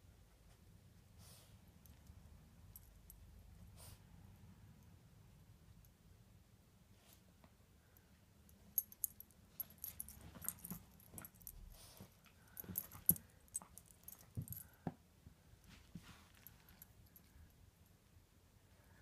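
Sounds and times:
fabric rustling: 9.6s - 13.2s.

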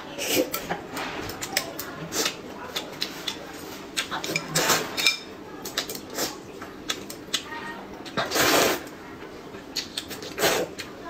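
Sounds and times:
slurping noodles and broth: 4.0s - 5.0s, 8.2s - 8.9s, 10.1s - 10.9s.

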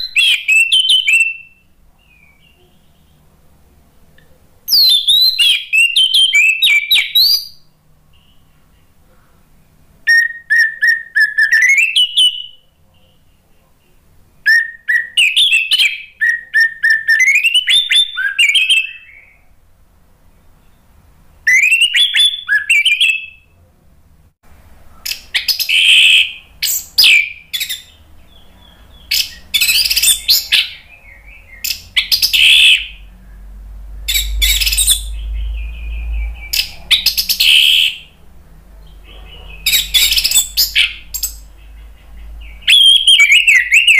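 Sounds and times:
low hum: 30.8s - 40.0s.

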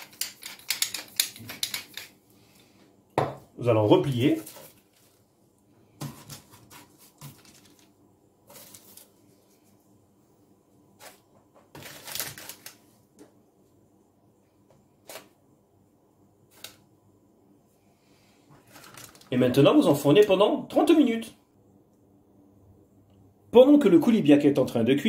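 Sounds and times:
baking parchment rustling: 3.8s - 9.9s, 10.9s - 13.1s, 18.6s - 19.7s.

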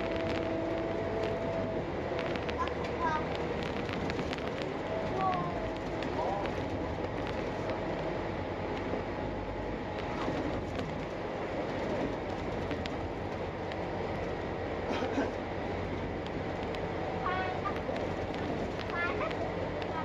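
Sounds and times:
faint rattles: 0.0s - 9.1s
bus engine and road rumble: 0.0s - 20.0s.

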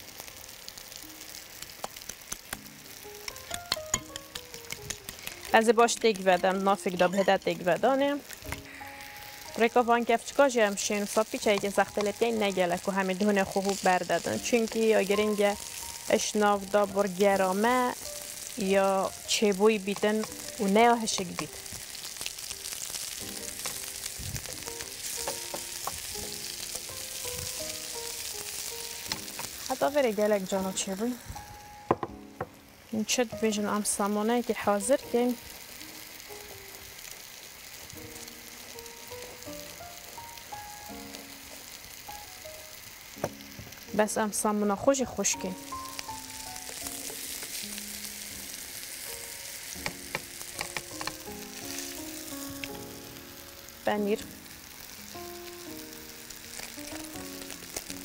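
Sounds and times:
food sizzling in frying pan: 0.0s - 58.0s
soft background music: 0.0s - 58.0s
spatula clicking against pan: 3.3s - 5.4s.

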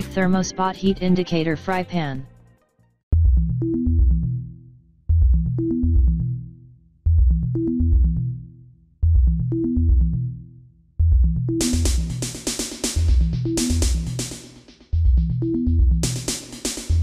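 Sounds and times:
electronic bass and synth music: 3.2s - 12.4s
hi-hat percussion: 11.6s - 15.0s, 16.0s - 17.0s.

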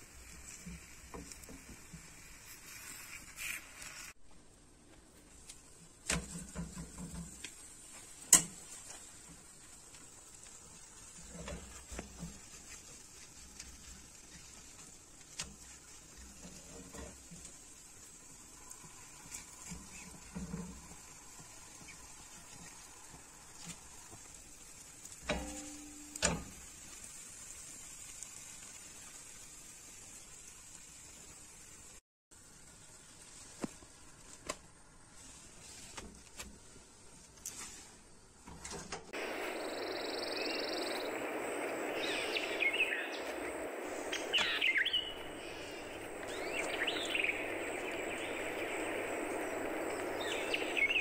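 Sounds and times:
crepe sizzling in a pan: 0.0s - 4.2s, 5.1s - 51.0s.

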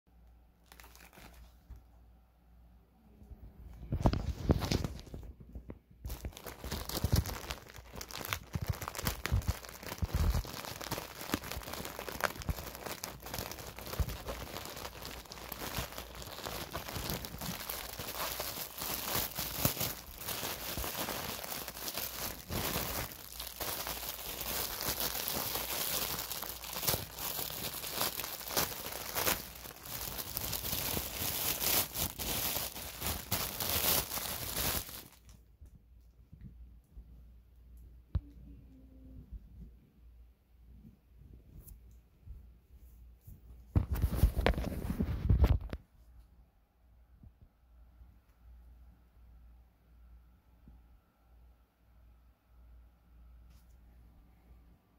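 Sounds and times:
plastic bag crinkling and tearing: 0.6s - 1.8s, 4.0s - 5.4s, 6.0s - 35.4s, 43.8s - 45.8s.

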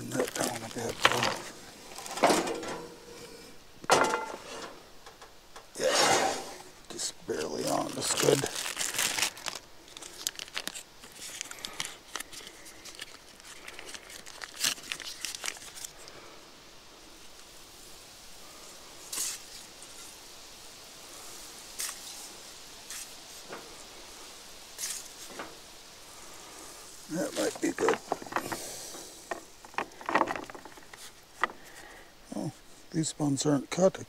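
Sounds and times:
plastic bag crinkling: 0.0s - 2.6s, 7.4s - 16.1s, 27.1s - 31.8s.

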